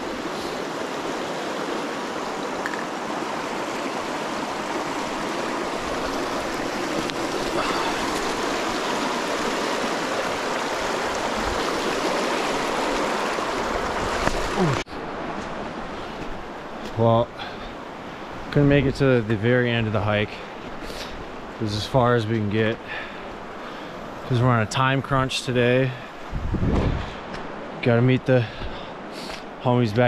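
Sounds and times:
water rushing over rocks: 0:00.0 - 0:17.7.

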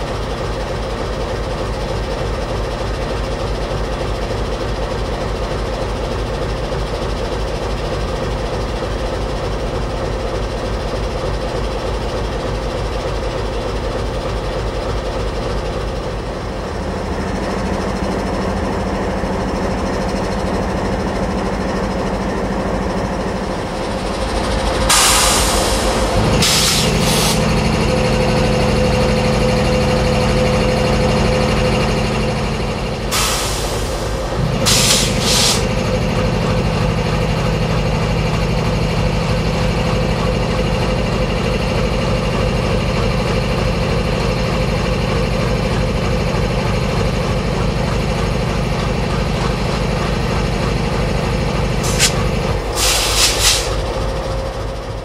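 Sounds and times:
diesel locomotive engine running: 0:00.0 - 0:55.0
loud hisses of air: 0:24.9 - 0:27.4, 0:33.1 - 0:35.7, 0:51.8 - 0:53.9.

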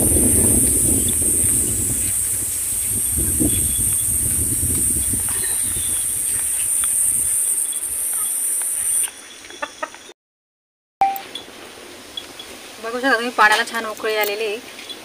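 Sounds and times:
steady high-pitched hiss: 0:00.0 - 0:10.0.

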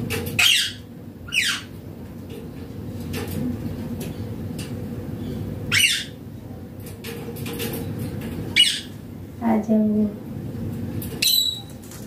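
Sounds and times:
parakeet squawking: 0:00.4 - 0:01.7, 0:05.7 - 0:06.2, 0:08.6 - 0:09.0.

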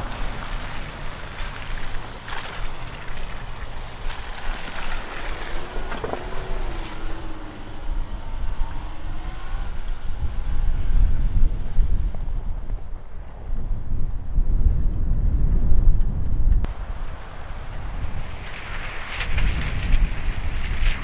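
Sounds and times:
wind buffeting microphone: 0:00.0 - 0:21.0
wavering engine note: 0:03.9 - 0:12.6.

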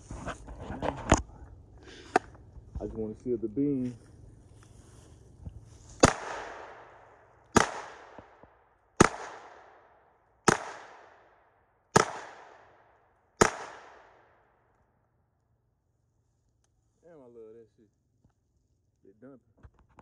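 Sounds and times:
gunshots echoing: 0:06.0 - 0:14.5.

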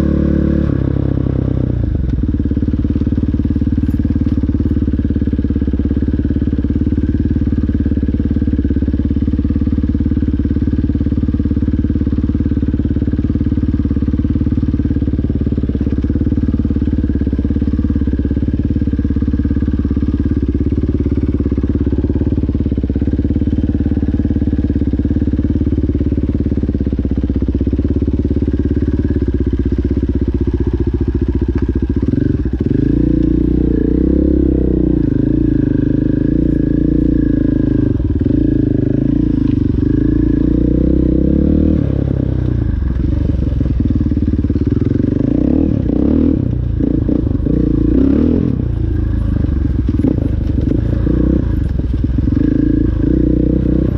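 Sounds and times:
dirt bike engine: 0:00.0 - 0:53.9
knocks and rattles over rough ground: 0:48.7 - 0:52.5.

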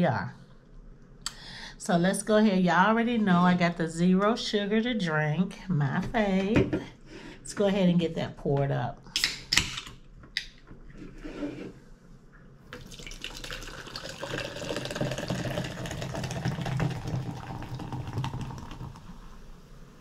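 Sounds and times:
drink pouring into cup: 0:12.7 - 0:19.4.

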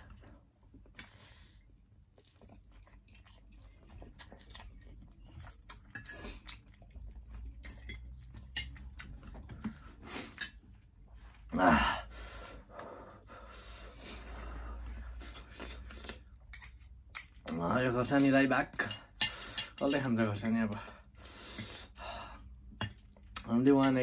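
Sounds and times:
chewing and slurping noodles: 0:00.0 - 0:10.6.

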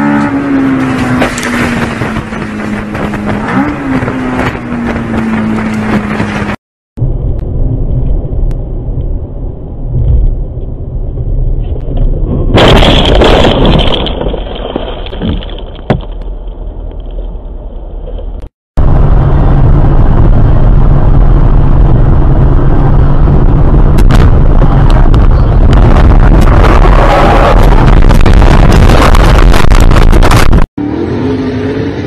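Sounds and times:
car driving drone from inside: 0:00.0 - 0:12.4, 0:17.6 - 0:32.0
road noise: 0:00.0 - 0:32.0.

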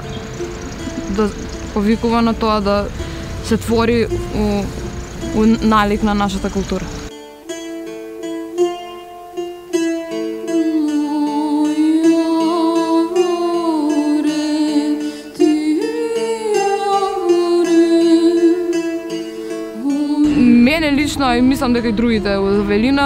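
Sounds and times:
woman singing folk melody: 0:00.0 - 0:07.0, 0:10.0 - 0:23.0
plucked string instrument: 0:00.0 - 0:23.0
woman speaking: 0:01.0 - 0:07.0, 0:20.2 - 0:23.0
steady held drone: 0:20.2 - 0:23.0.

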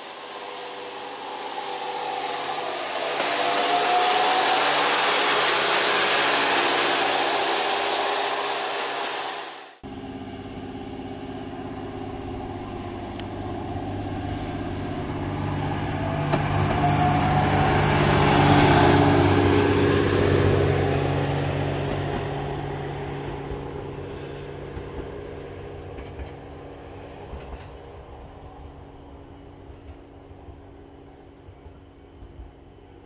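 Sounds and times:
inverter whine: 0:00.0 - 0:17.9
diesel engine droning: 0:00.0 - 0:27.1.

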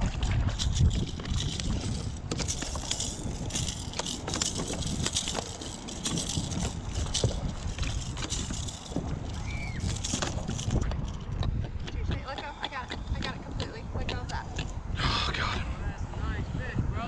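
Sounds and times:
knocks and rustles of handling gear: 0:00.0 - 0:11.8
wind buffeting microphone: 0:00.0 - 0:17.0.

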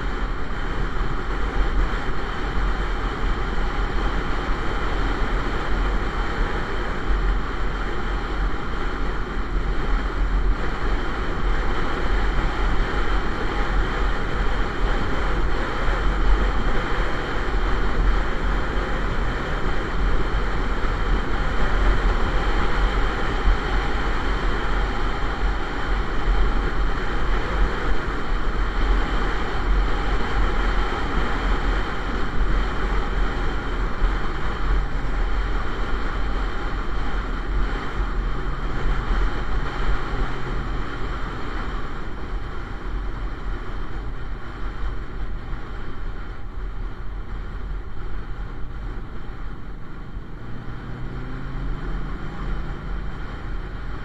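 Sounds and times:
deep motorcycle engine rumble: 0:00.0 - 0:54.0
road noise: 0:00.0 - 0:54.0.

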